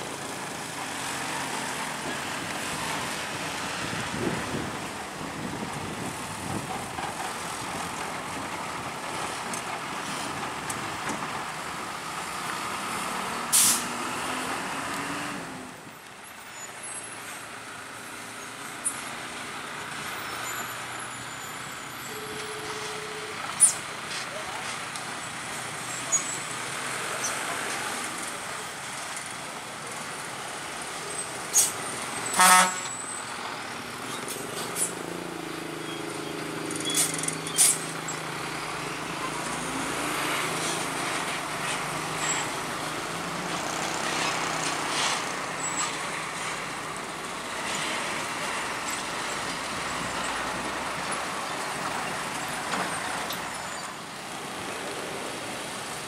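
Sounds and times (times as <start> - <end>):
vehicles rolling over rails: 0.0 - 22.4, 23.3 - 56.0
truck engine humming: 28.2 - 56.0
short horn toot: 32.3 - 32.9.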